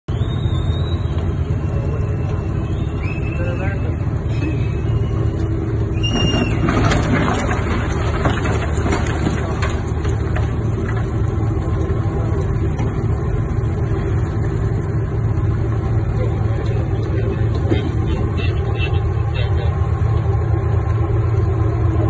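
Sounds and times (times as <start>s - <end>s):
ship engines droning: 0.1s - 22.0s
hull cracking and knocking boat: 6.0s - 15.0s.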